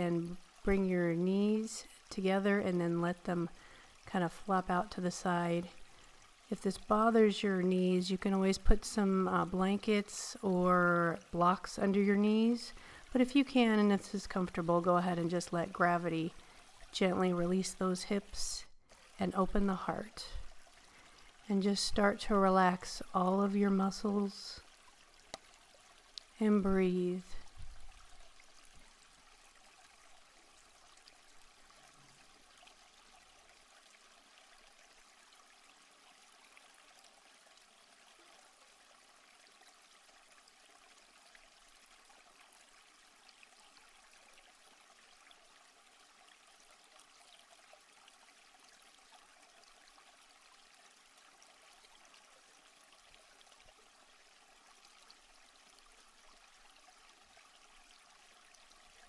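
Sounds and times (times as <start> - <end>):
stream water rushing over rocks: 19.0 - 34.8.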